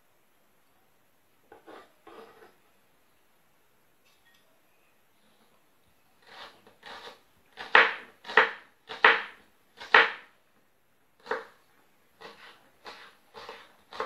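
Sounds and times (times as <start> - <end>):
knife chopping on wooden board: 6.3 - 10.3, 12.2 - 14.0.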